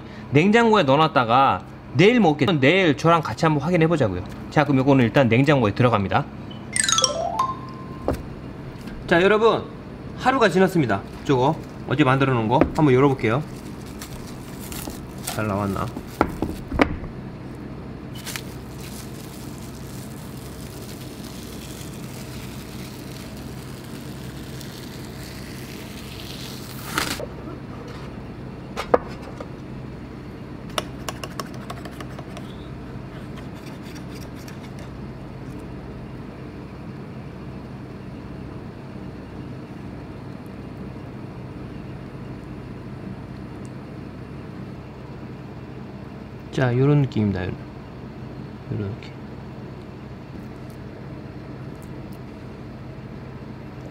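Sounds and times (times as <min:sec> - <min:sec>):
steady background hum: 0:00.0 - 0:53.9
cling wrap crinkling: 0:12.8 - 0:16.7, 0:18.1 - 0:27.2.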